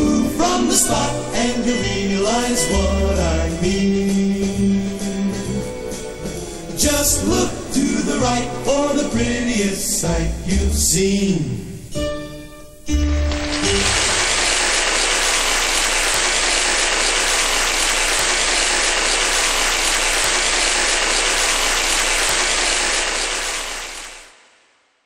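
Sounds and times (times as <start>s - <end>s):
audience applauding: 13.2s - 24.4s.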